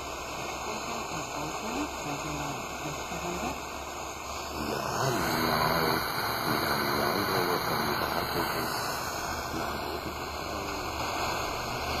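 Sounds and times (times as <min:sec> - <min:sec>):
radio static hiss: 0:00.0 - 0:12.0
faint voice on radio: 0:04.6 - 0:08.8.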